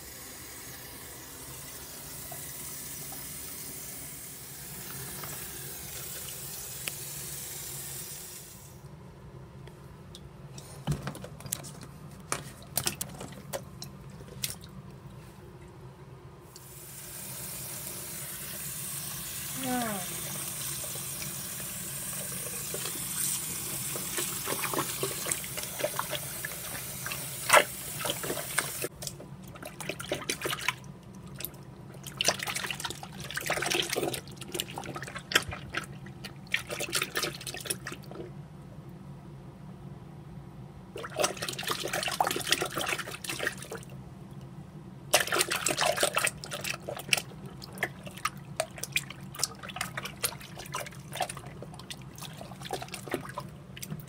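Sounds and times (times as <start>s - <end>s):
water splashing and sloshing: 10.9s - 15.9s, 22.0s - 38.4s, 41.0s - 44.0s, 45.1s - 54.0s.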